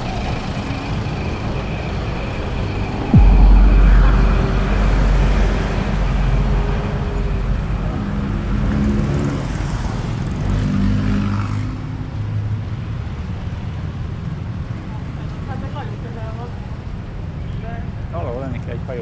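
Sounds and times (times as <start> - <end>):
deep traffic rumble: 2.4 - 13.9
vehicle engines passing: 3.1 - 13.2.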